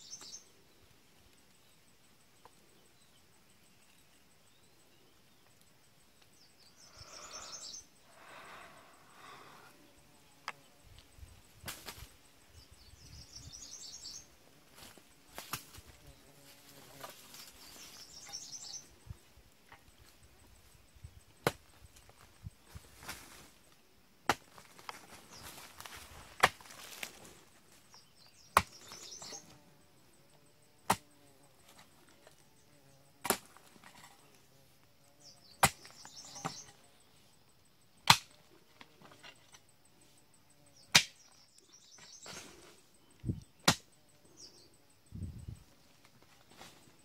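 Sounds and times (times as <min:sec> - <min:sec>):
hoe chopping into earth: 0:21.4 - 0:21.7, 0:24.3 - 0:24.6, 0:26.3 - 0:26.8, 0:28.5 - 0:29.4, 0:30.8 - 0:31.1, 0:33.2 - 0:34.1, 0:35.5 - 0:36.7, 0:38.0 - 0:38.4, 0:40.9 - 0:41.3, 0:43.6 - 0:43.9
soil scraping and crumbling: 0:33.2 - 0:34.4, 0:41.8 - 0:42.8.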